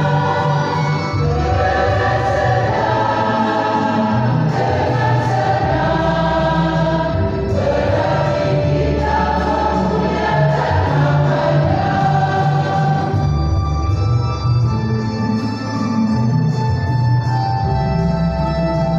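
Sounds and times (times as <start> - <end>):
choir singing a hymn: 0.0 - 13.8
low bass accompaniment: 0.0 - 18.9.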